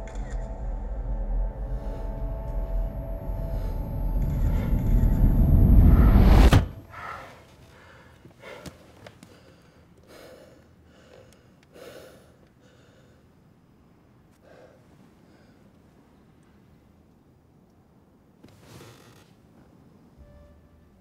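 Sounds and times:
low rumbling drone: 0.0 - 7.0.

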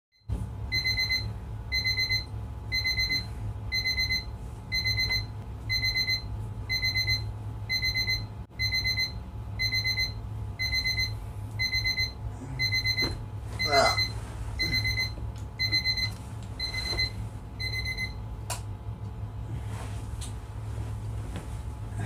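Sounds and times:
steady low hum: 0.2 - 22.0
electronic alarm beeping: 0.7 - 18.2.

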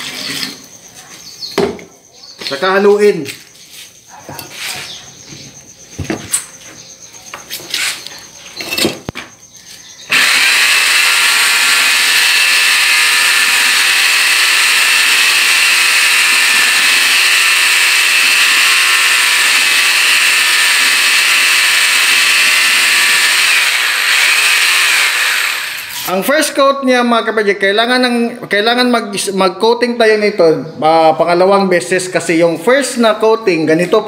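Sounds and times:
power mixer churning in bucket: 10.1 - 26.1.

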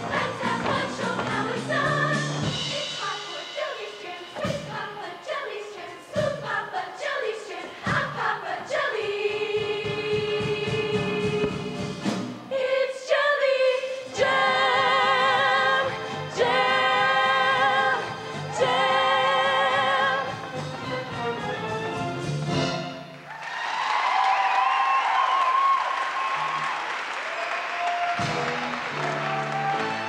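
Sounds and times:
choir singing with accompaniment: 0.0 - 22.1.

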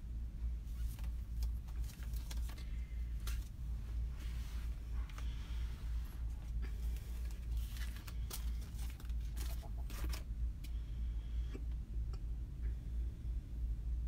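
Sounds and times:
steady low hum: 0.0 - 14.0
craft supplies rustling and scraping: 0.7 - 10.3.

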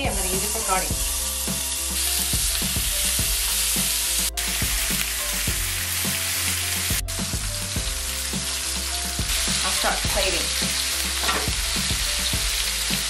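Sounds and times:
light background music: 0.0 - 13.0
pork sizzling in frying pan: 0.0 - 13.0.

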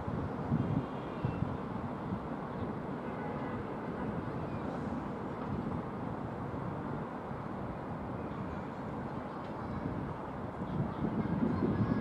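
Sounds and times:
wind buffeting microphone: 0.0 - 2.8, 7.7 - 12.0
freight train rumbling over bridge: 0.0 - 12.0.

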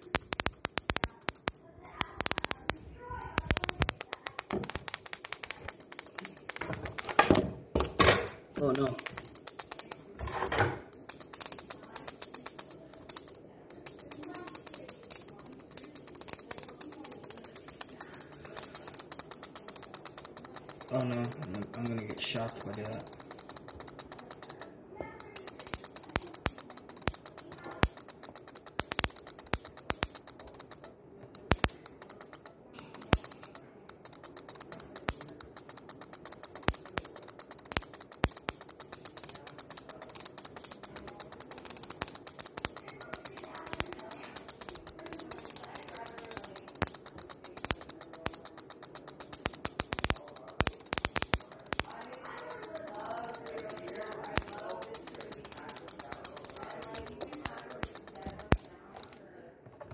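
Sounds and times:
relay chattering: 0.0 - 7.4, 8.2 - 10.2, 10.9 - 59.2.

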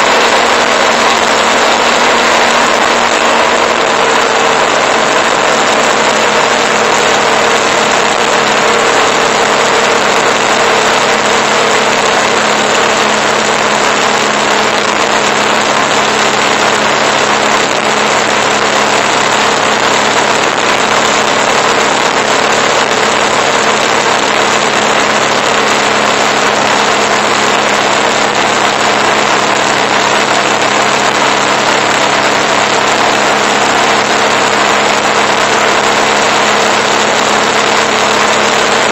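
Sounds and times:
motorcycle engine hum: 0.0 - 38.9.

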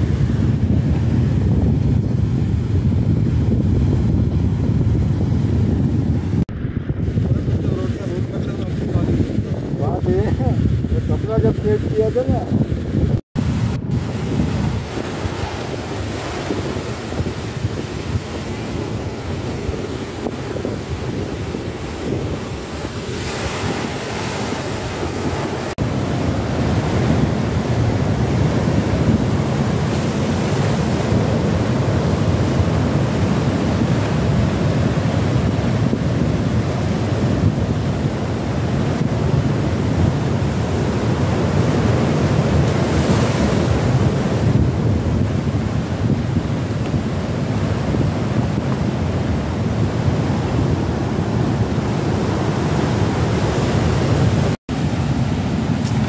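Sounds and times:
wind buffeting microphone: 0.0 - 56.0
waves breaking on rocky shore: 13.4 - 56.0.

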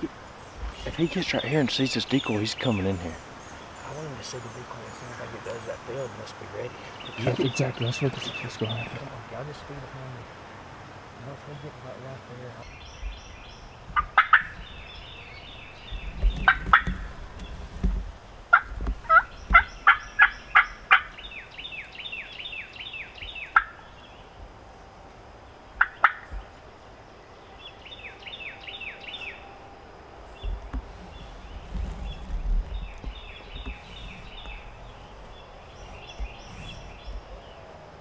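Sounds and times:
turkeys gobbling: 13.9 - 14.8, 16.4 - 17.1, 18.5 - 21.2, 23.5 - 23.8, 25.8 - 26.4.

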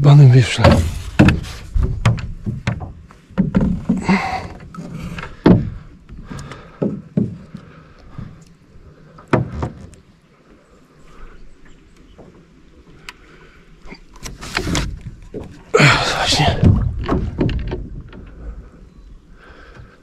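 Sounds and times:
oars knocking against boat: 0.4 - 8.4, 9.0 - 10.2, 13.9 - 20.0.

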